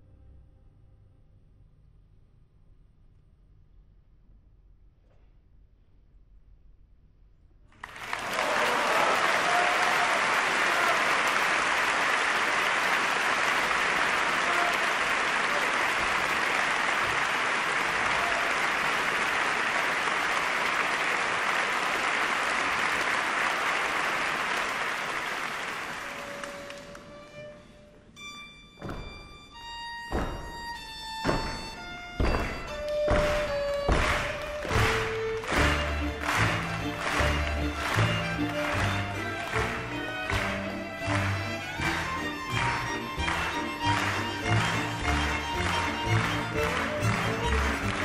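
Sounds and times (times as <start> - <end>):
audience applauding: 7.7 - 27.2, 31.5 - 48.0
string ensemble accented chords: 26.1 - 48.0.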